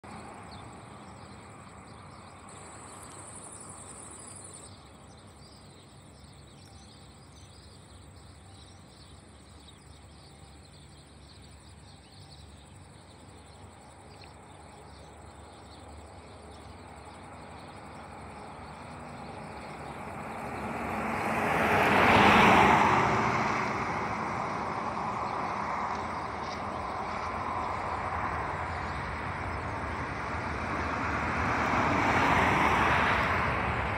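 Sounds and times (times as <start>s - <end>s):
car passing: 13.4s - 33.9s
distant airliner hum: 15.1s - 33.9s.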